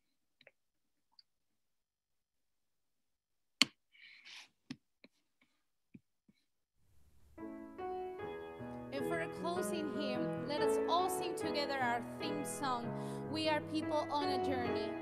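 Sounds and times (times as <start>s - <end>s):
piano music: 7.4s - 15.0s.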